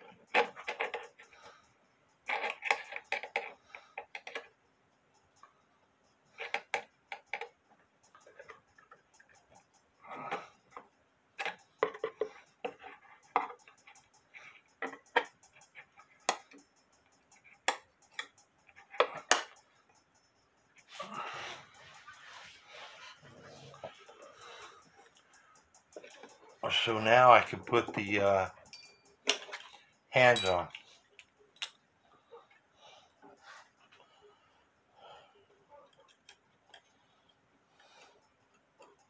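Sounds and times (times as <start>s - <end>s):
metallic clicks and clinks of tools: 0.0s - 22.0s, 23.9s - 31.9s.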